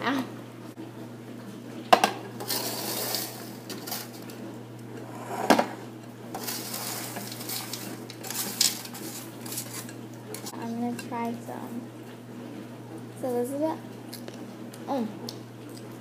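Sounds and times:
spatula scraping metal baking sheet: 0:02.4 - 0:04.1, 0:05.0 - 0:05.8, 0:06.4 - 0:09.9.

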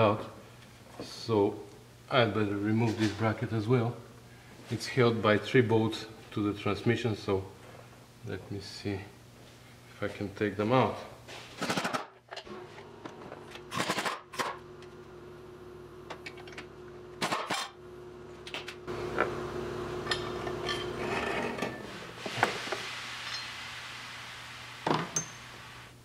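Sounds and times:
steady hum: 0:12.5 - 0:26.0
metal clatter and scraping: 0:20.1 - 0:23.6.

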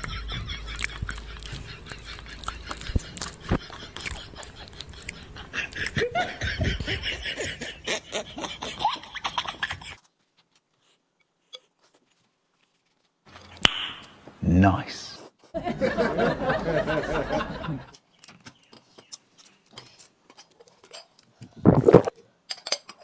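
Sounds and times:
person laughing: 0:00.0 - 0:09.8.

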